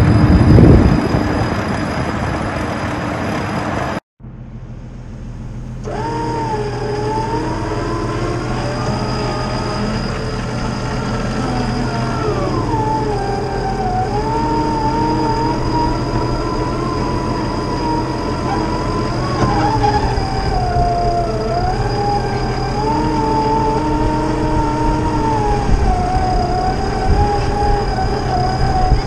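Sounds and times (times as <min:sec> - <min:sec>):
engine revving hard: 0:05.8 - 0:29.0
wheels spinning in sand: 0:05.8 - 0:29.0.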